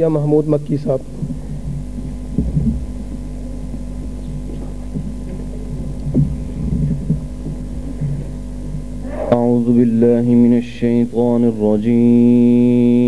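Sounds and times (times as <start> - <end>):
electrical hum: 0.0 - 13.0
microphone knocks and rustles: 1.0 - 9.4.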